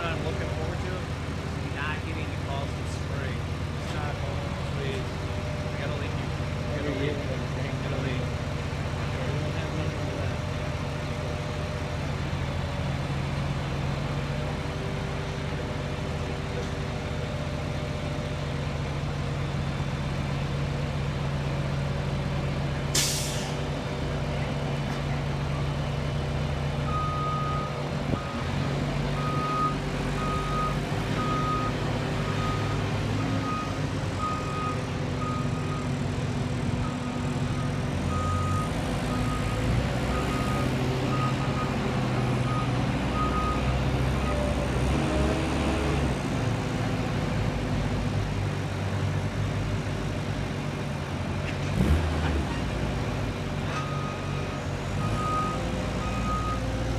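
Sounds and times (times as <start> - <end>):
diesel engine running: 0.0 - 56.9
short hiss of air: 23.0 - 23.6.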